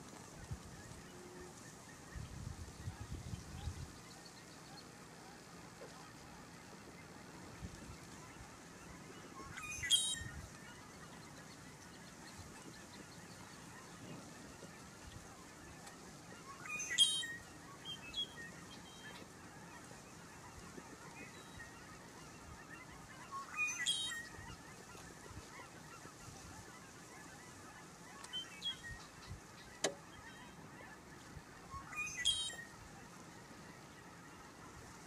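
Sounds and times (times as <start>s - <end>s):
bird call notes: 3.5s - 34.8s
blackbird song with buzzy trill: 8.0s - 14.7s, 15.9s - 26.0s, 28.1s - 30.8s, 31.7s - 32.9s.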